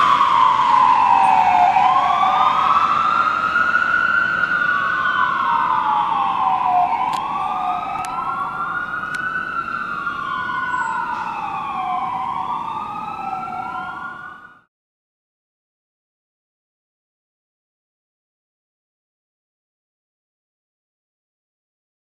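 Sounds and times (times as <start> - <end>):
fire engine siren wailing: 0.0 - 14.7.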